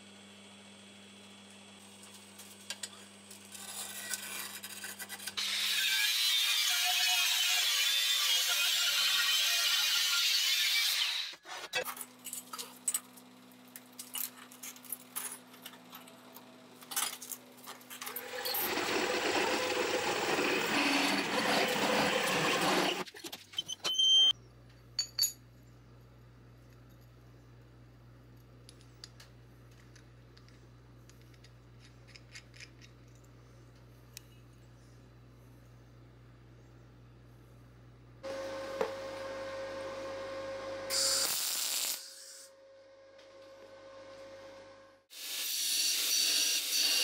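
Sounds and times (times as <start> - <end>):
angle grinder cutting steel: 5.4 - 11.4, 18.1 - 23.0, 45.1 - 47.0
step drill cutting steel: 18.1 - 23.0
metallic clinks: 25.0 - 25.5.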